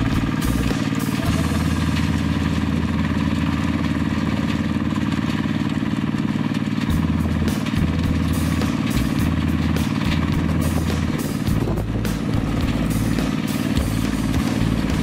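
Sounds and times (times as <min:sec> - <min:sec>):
rotary blade churning soil: 0:00.0 - 0:15.0
tractor engine running: 0:00.0 - 0:15.0.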